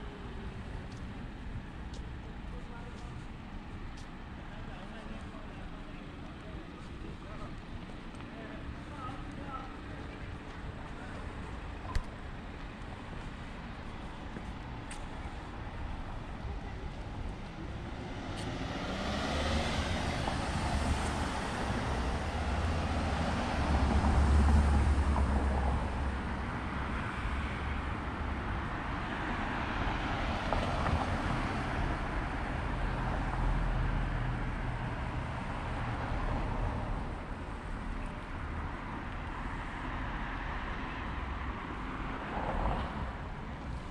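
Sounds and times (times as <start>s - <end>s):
cars passing: 0.0s - 43.9s.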